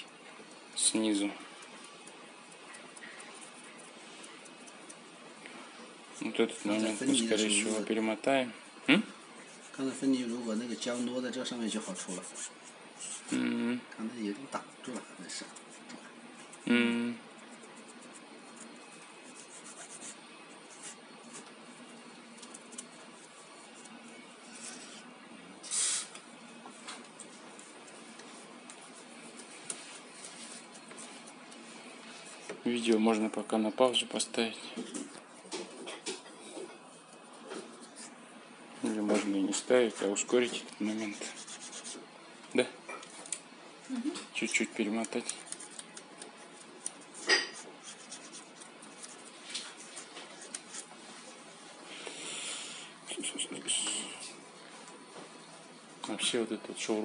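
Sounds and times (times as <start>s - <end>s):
cloth rubbing on glass screen: 5.6s - 8.0s, 9.2s - 13.4s, 17.4s - 32.9s
fingers rubbing glass screen: 9.5s - 13.4s.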